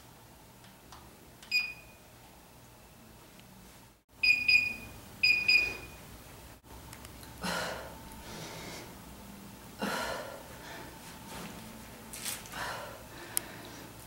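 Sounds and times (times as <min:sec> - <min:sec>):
electronic timer double beeps: 0:01.5 - 0:02.0, 0:04.2 - 0:06.0.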